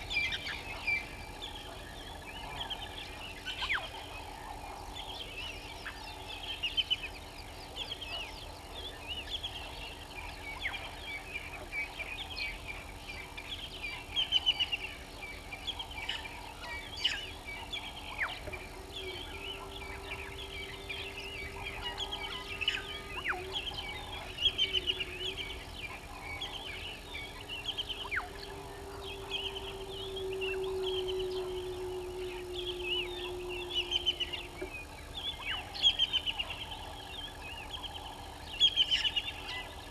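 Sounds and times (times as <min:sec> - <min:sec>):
birds chirping: 0:00.0 - 0:39.9
low steady drone: 0:00.0 - 0:39.9
guineafowl cackling: 0:15.7 - 0:39.9.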